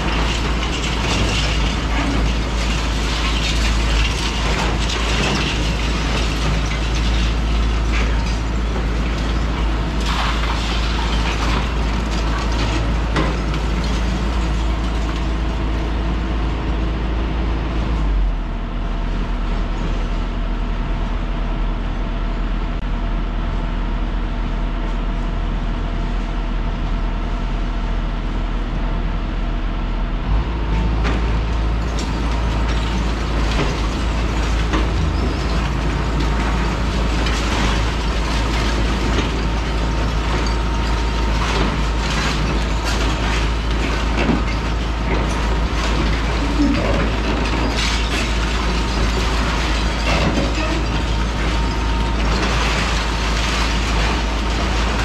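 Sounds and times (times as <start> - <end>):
masonry cracking and rubble falling: 0.0 - 16.7, 30.8 - 55.0
excavator diesel engine running: 0.0 - 55.0.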